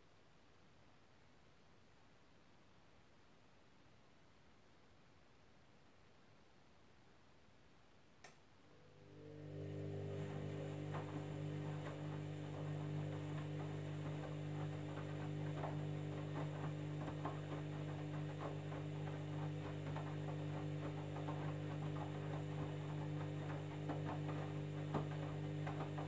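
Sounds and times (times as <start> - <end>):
washing machine motor hum: 8.6 - 26.0
wet laundry tumbling: 9.4 - 26.0.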